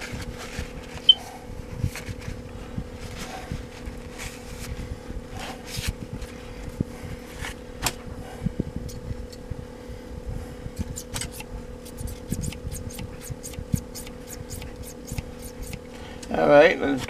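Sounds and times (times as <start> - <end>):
paper towel rustling: 0.0 - 1.1, 1.7 - 7.6
fan humming: 0.0 - 17.0.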